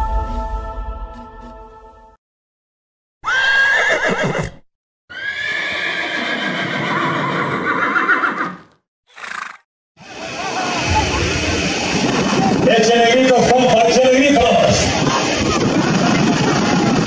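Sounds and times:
horse whinnying: 0:03.2 - 0:09.6.

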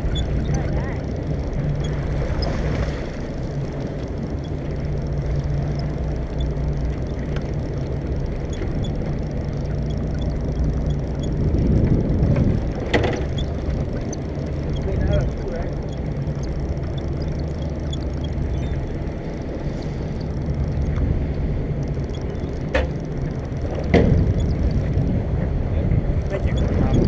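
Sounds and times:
boat engine humming: 0:00.0 - 0:27.0.

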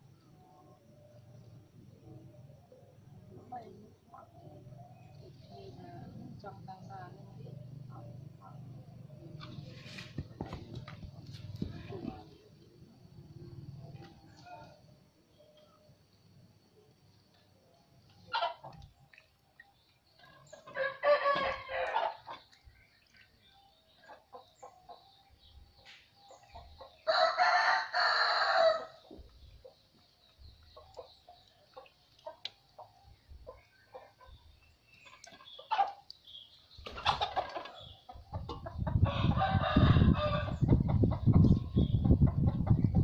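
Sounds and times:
chickens clucking: 0:18.2 - 0:18.9, 0:29.0 - 0:39.4, 0:40.3 - 0:43.0
rooster crowing: 0:20.7 - 0:22.2, 0:27.0 - 0:29.0, 0:39.0 - 0:40.6.

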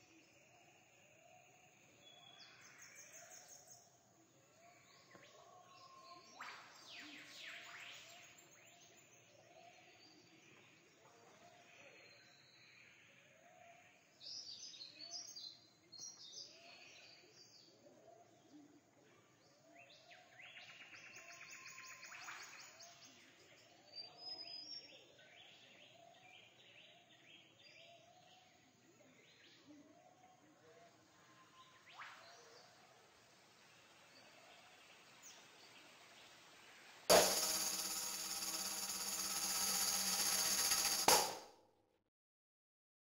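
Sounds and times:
background hiss: 0:31.7 - 0:37.4.

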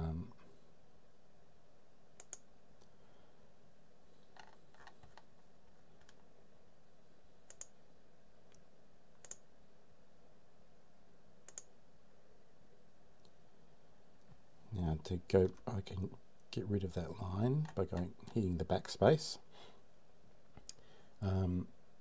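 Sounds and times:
faint steady hiss: 0:00.0 - 0:22.0
mouse button clicking: 0:11.5 - 0:11.7.

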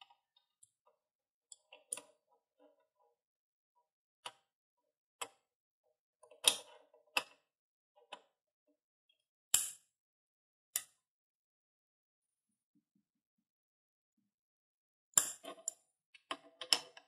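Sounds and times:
metal-on-metal clicks and taps: 0:01.5 - 0:02.8, 0:06.2 - 0:07.4, 0:10.8 - 0:11.0, 0:15.2 - 0:17.0.

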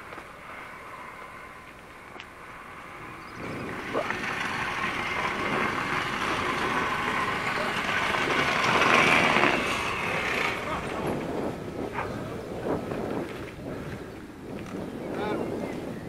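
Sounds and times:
truck engine running: 0:00.0 - 0:12.7.

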